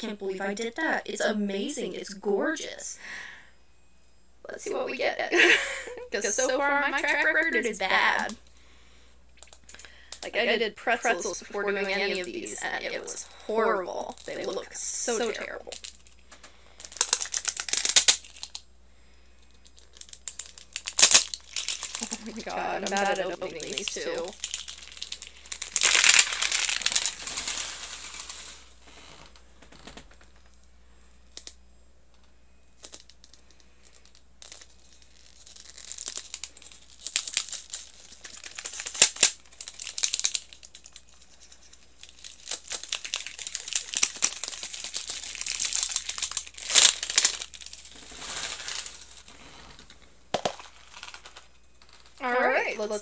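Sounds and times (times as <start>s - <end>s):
plastic wrapping crinkling: 6.2s - 8.5s, 9.4s - 18.7s, 19.4s - 30.6s, 32.8s - 52.2s.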